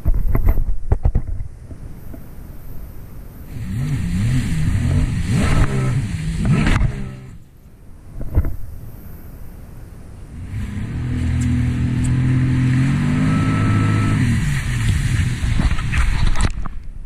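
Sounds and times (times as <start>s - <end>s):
rushing water and spray: 1.4s - 17.0s
jet ski engine revving: 3.5s - 7.5s, 10.3s - 16.0s.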